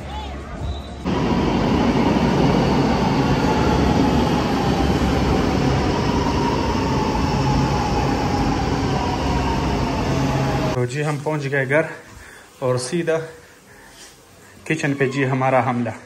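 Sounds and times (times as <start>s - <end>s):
faint train whine: 0.6s - 10.8s
metro train rumbling: 1.0s - 10.8s.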